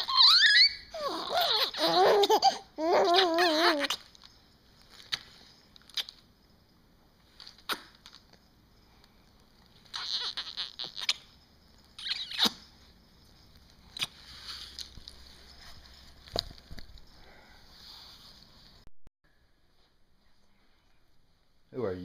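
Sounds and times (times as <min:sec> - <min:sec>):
baby giggling and squeaking: 0:00.0 - 0:04.1, 0:09.8 - 0:11.4, 0:12.0 - 0:12.7
rustling: 0:12.7 - 0:18.8.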